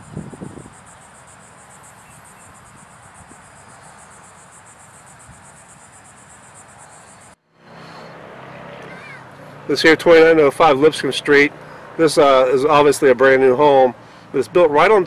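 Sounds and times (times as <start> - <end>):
insects chirring: 0.0 - 7.4.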